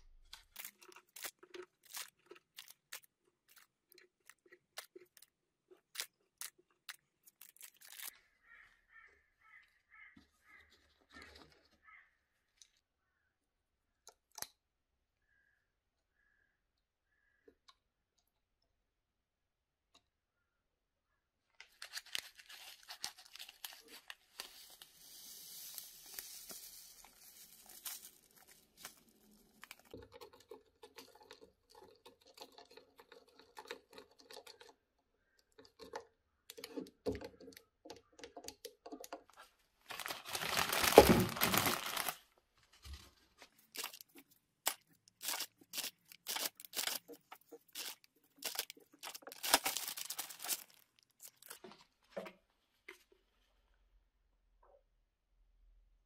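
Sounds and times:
plastic bag crinkling: 0.0s - 8.2s, 21.6s - 31.8s, 39.8s - 42.4s, 43.0s - 51.7s.

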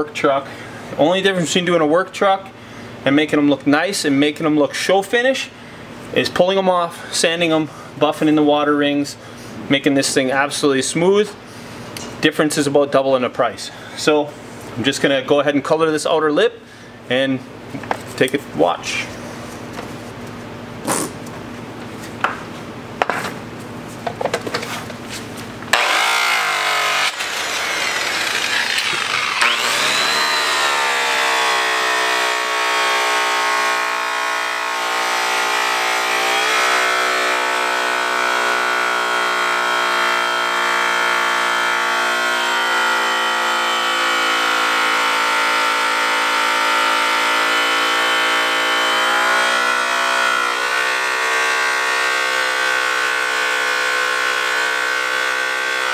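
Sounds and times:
rotary buffer whining: 25.6s - 55.9s.

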